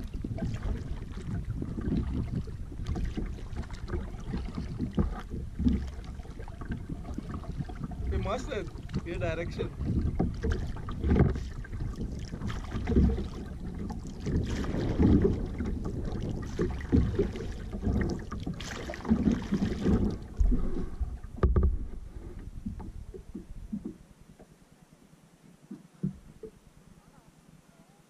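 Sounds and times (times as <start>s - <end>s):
low rumble: 0.0s - 18.4s
kayak paddle splashing: 0.0s - 24.8s.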